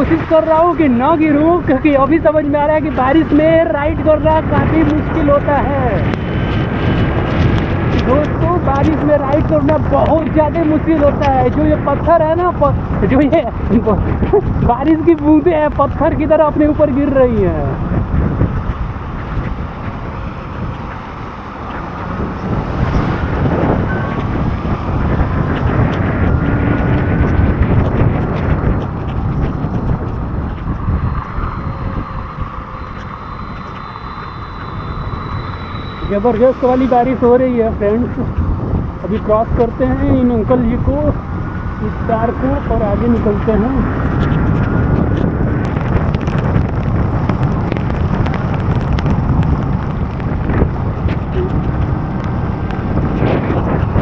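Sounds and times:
rain and road spray: 0:00.0 - 0:54.0
wind rushing over microphone: 0:00.0 - 0:54.0
raindrops tapping: 0:43.0 - 0:54.0.

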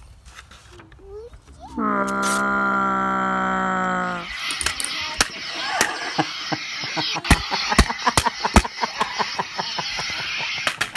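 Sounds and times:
toy lightsaber hiss: 0:03.6 - 0:10.9.

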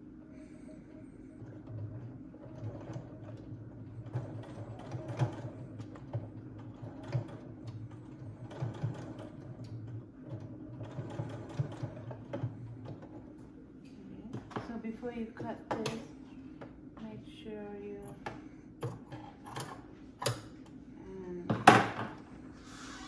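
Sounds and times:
sewing machine stitching: 0:01.0 - 0:13.3.

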